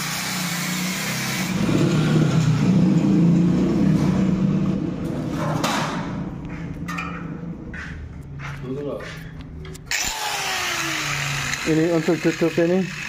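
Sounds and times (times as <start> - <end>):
vehicle engine passing by: 1.5 - 9.4.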